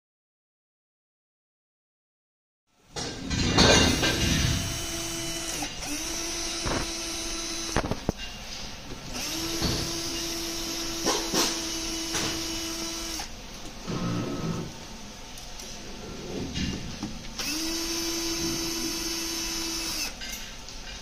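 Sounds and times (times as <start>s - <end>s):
cordless drill whining: 3.9s - 8.1s, 9.1s - 13.3s, 17.4s - 20.2s.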